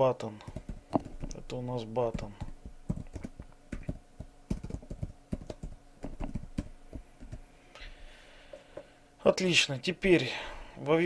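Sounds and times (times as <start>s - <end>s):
computer keyboard typing: 0.4s - 7.4s.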